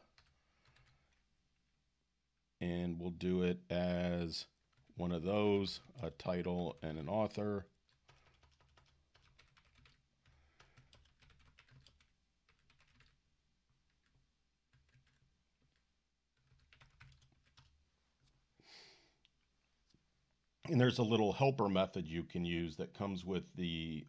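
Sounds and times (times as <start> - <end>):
keyboard typing: 0.0 - 1.3, 4.6 - 13.2, 13.8 - 18.4.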